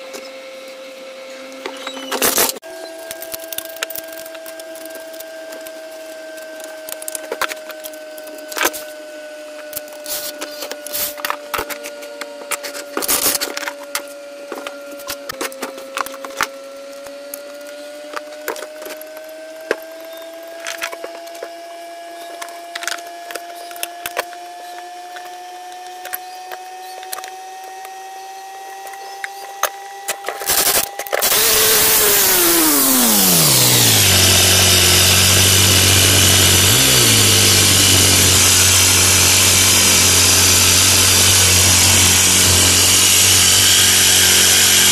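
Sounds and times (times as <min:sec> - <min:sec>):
loud machine running: 0:30.4 - 0:44.9.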